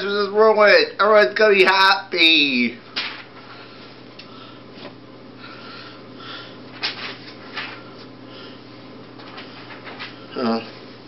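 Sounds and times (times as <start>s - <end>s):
steady low hum: 0.0s - 11.0s
faint rustles and clicks: 9.0s - 11.0s.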